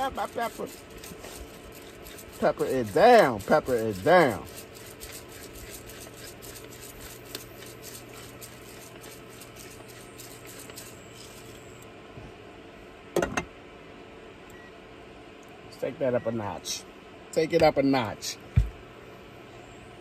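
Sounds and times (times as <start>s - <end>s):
pepper mill grinding: 0.0s - 11.7s
steady low hum: 0.0s - 20.0s.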